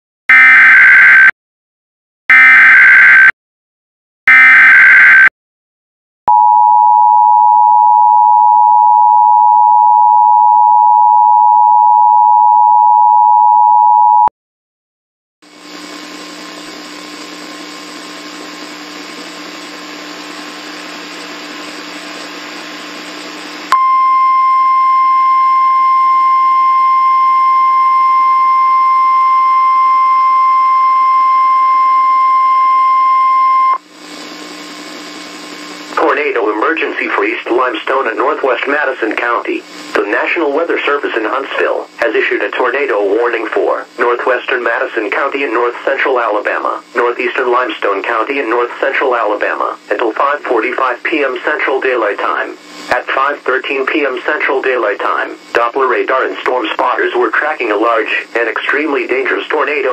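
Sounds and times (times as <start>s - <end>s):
loud steady alarm tone: 0.3s - 1.3s, 2.3s - 3.3s, 4.3s - 5.3s
radio static with faint tones: 35.9s - 59.9s.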